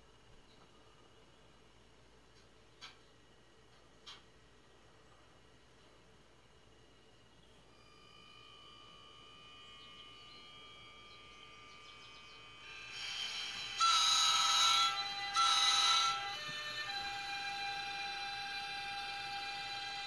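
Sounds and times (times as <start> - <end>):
faint electrical hum: 0.0 - 20.0
train horn blasts: 12.4 - 20.0.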